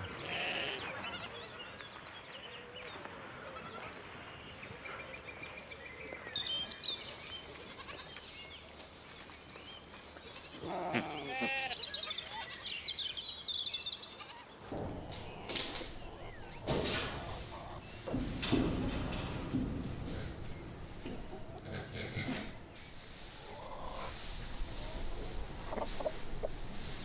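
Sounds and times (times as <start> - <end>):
goat bleating: 0.2 - 1.3, 10.6 - 12.6.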